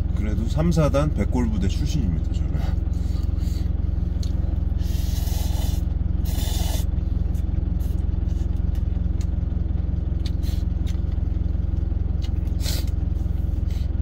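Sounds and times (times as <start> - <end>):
truck engine idling hum: 0.0 - 14.0
noodles slurping: 4.8 - 6.9.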